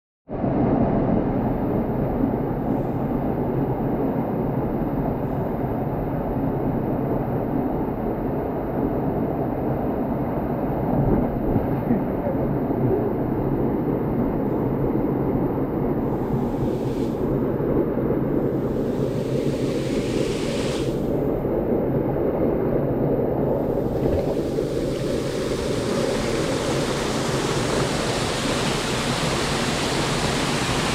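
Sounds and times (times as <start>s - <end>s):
wind buffeting microphone: 0.3s - 30.9s
rushing water: 16.2s - 17.4s, 18.4s - 21.3s, 23.6s - 30.9s.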